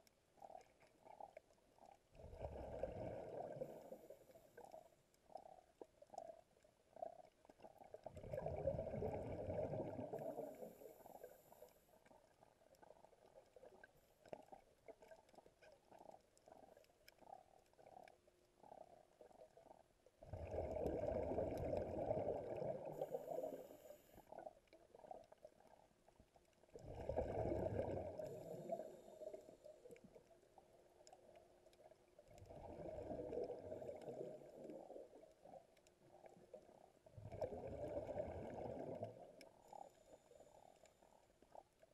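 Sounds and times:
faint bubbly crackling: 0:00.0 - 0:41.9
underwater exhaled bubbles rushing: 0:00.4 - 0:04.8, 0:07.0 - 0:11.6, 0:12.2 - 0:25.8, 0:26.7 - 0:30.2, 0:30.8 - 0:35.6, 0:36.2 - 0:39.9.

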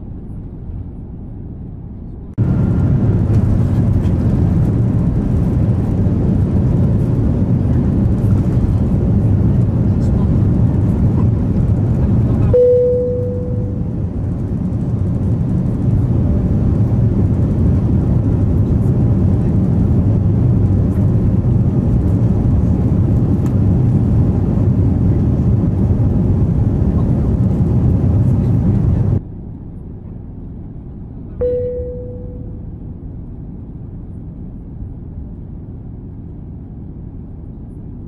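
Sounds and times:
jet engine and airflow rumble: 0:00.0 - 0:38.0
cabin chime tone: 0:12.6 - 0:13.8, 0:31.4 - 0:32.6.

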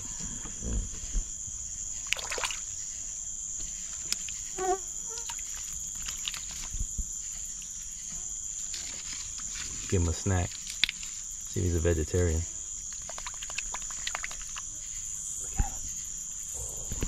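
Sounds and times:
crickets and insects trilling: 0:00.0 - 0:17.0
small splashes in shallow water: 0:02.0 - 0:02.8, 0:12.9 - 0:14.7.

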